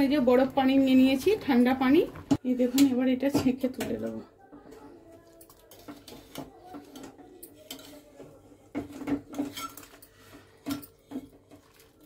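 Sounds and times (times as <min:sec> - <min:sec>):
metal utensil scraping a cooking pot: 0:05.6 - 0:12.0.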